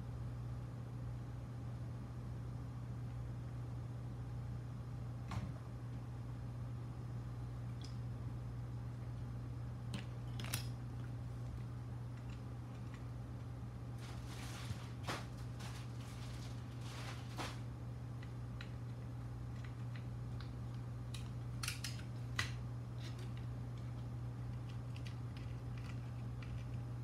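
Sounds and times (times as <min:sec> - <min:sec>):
steady low hum: 0:00.0 - 0:27.0
small clicks and rustles: 0:18.2 - 0:27.0.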